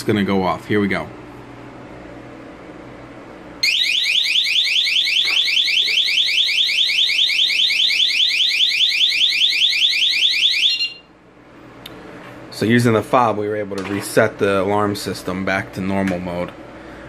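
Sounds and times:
alarm siren warbling: 0:03.6 - 0:11.1.

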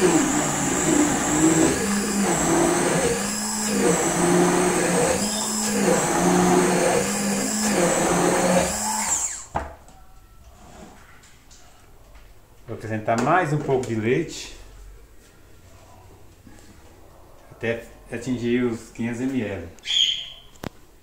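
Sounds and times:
stick blender running: 0:00.0 - 0:09.5.

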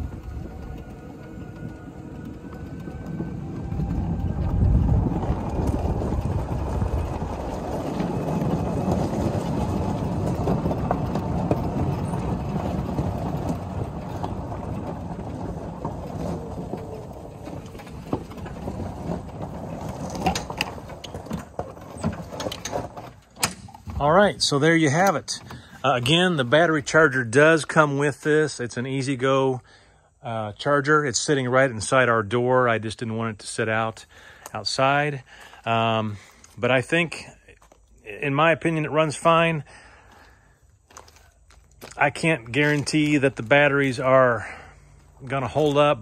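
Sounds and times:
faint electric motor whine: 0:00.0 - 0:07.4
tyres rumbling on gravel: 0:00.0 - 0:46.0.

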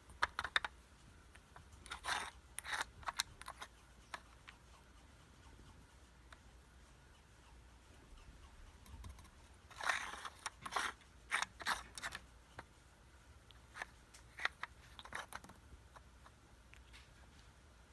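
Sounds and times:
plastic toy clicks and scrapes: 0:00.0 - 0:00.7, 0:01.8 - 0:04.3, 0:09.7 - 0:12.2, 0:13.7 - 0:15.6.

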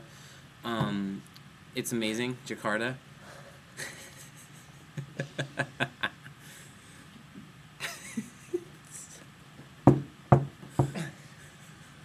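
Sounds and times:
man laughing: 0:03.8 - 0:06.4, 0:07.8 - 0:09.2, 0:10.8 - 0:12.0.

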